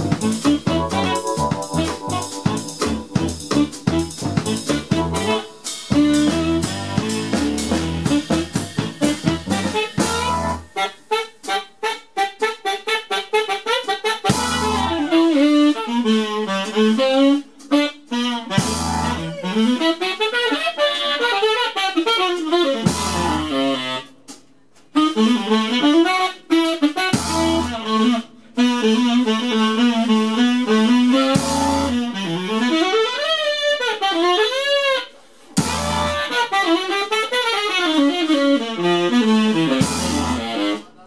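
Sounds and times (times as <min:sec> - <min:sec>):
full-band accent hits: 0:00.0 - 0:10.4
live band playing: 0:00.0 - 0:12.7, 0:13.3 - 0:20.1, 0:22.1 - 0:24.4, 0:25.2 - 0:32.9, 0:35.6 - 0:41.0
wavering lead melody: 0:00.2 - 0:10.6.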